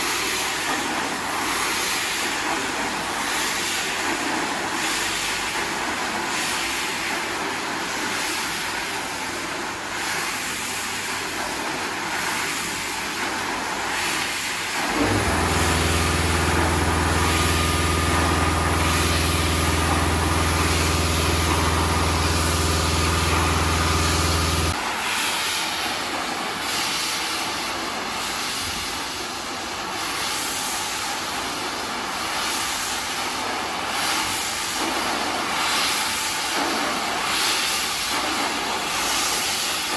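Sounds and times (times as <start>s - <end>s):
wet brush scrubbing carpet: 14.8s - 24.8s
electric motor hum: 14.9s - 24.8s.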